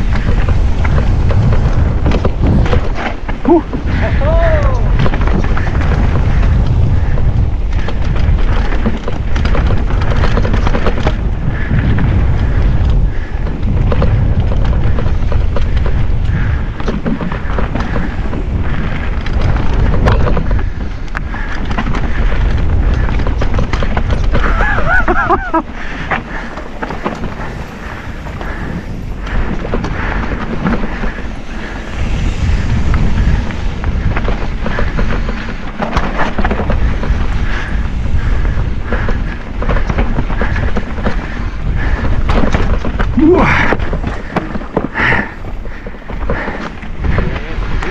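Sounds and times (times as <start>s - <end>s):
mountain bike rumbling and rattling: 0.0s - 47.9s
wind buffeting microphone: 0.0s - 47.9s.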